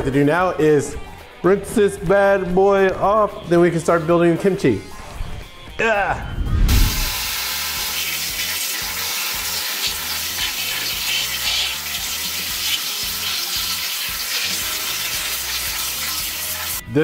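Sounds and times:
tap water running: 6.9s - 16.8s
hands rinsing leaves splashing: 7.2s - 16.8s.

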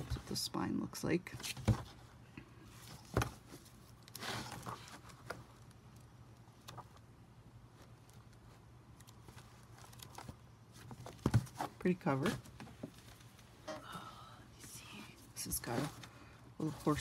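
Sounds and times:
pages rustling: 2.7s - 12.3s.

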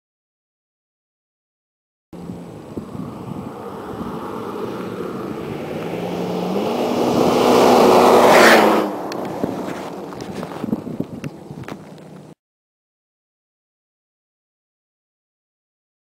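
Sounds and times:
pickup truck engine passing: 2.2s - 12.0s
tyres on gravel: 2.5s - 12.4s.

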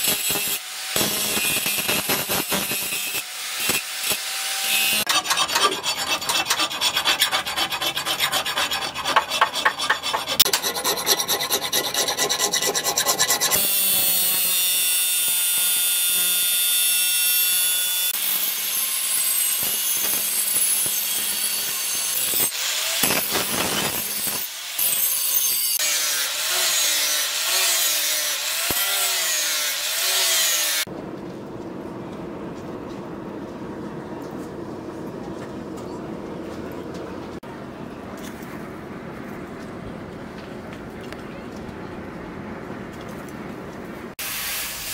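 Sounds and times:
angle grinder grinding steel: 0.0s - 30.9s
hand file rasping on steel: 4.9s - 13.6s.

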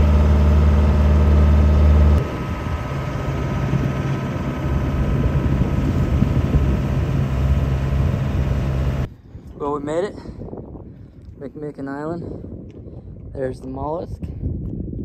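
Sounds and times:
boat engine humming: 0.0s - 9.1s
wind and water rushing: 0.0s - 9.1s.

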